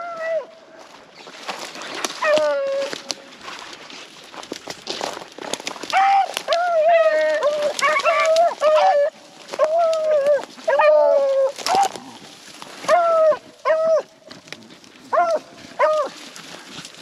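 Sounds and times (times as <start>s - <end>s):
hounds baying: 0.0s - 3.7s, 4.6s - 17.0s
brush crackling: 0.0s - 17.0s.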